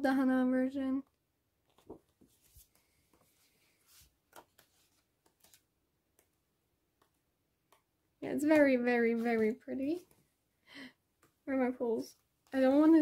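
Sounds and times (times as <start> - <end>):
book pages turning: 1.6 - 6.4.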